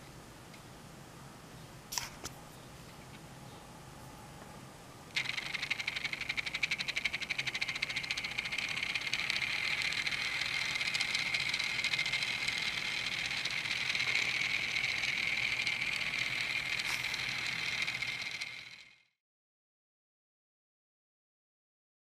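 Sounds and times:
tiny electric motor whine: 5.1s - 19.2s.

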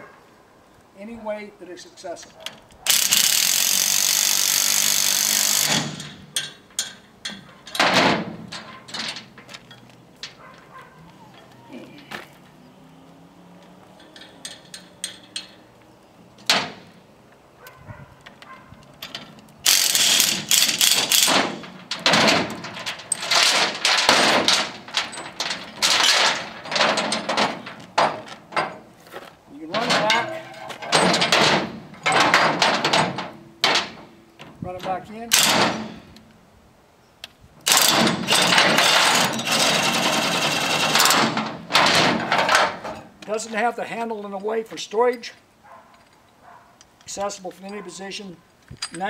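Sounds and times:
metal clatter: 2.5s - 11.5s, 14.0s - 15.7s, 18.3s - 29.0s, 29.7s - 34.6s, 35.4s - 36.2s, 37.7s - 43.2s
heavy chain rattling and clanking: 2.9s - 10.6s, 13.9s - 15.7s, 19.0s - 29.0s, 29.6s - 34.1s, 35.3s - 36.2s, 37.7s - 43.5s
metal clicks: 14.0s - 15.7s, 48.6s - 49.0s.

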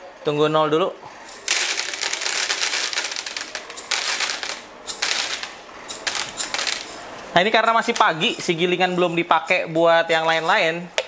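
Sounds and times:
coffee beans pouring into plastic bowl: 1.4s - 6.9s.

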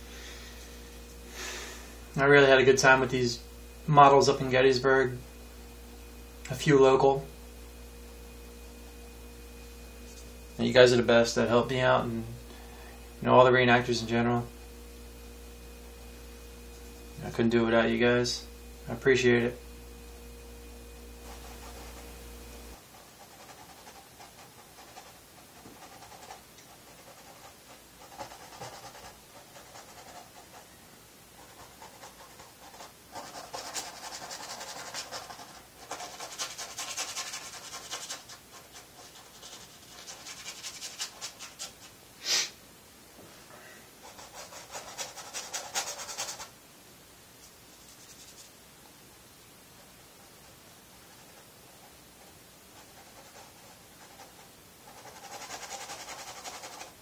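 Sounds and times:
paintbrush scrubbing canvas: 22.8s - 30.7s, 31.4s - 41.9s, 44.0s - 46.5s, 47.4s - 48.6s, 49.8s - 57.0s.

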